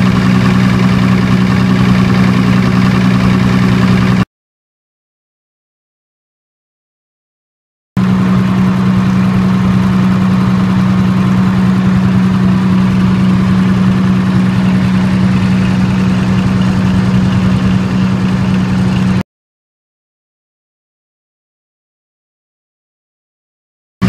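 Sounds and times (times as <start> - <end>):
diesel generator droning: 0.0 - 4.3, 8.0 - 19.2.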